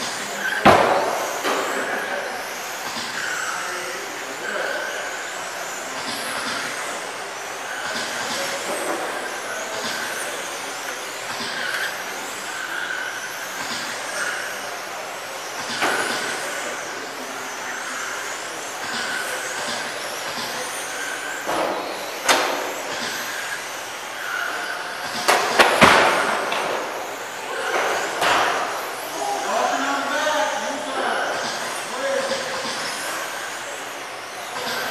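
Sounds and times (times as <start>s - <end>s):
electric model car motors whining: 0.0s - 34.9s.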